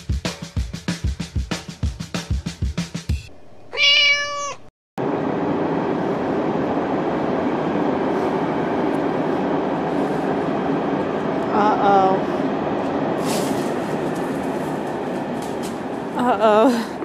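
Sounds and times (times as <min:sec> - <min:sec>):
drum beat: 0:00.0 - 0:03.3
cat meow: 0:03.7 - 0:04.7
steady rushing noise: 0:05.0 - 0:17.0.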